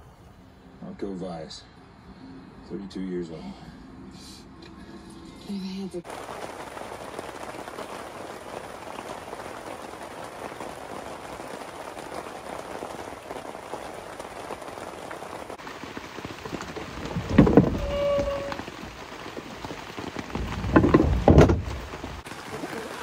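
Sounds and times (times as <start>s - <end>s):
rain on tent fabric: 6.0s - 23.0s.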